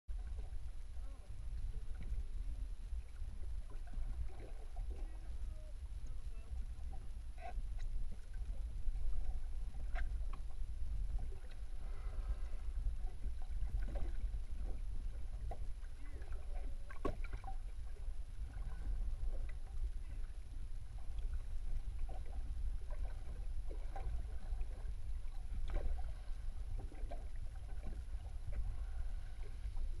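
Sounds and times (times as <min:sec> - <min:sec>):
underwater rumble of moving water: 0:00.1 - 0:30.0.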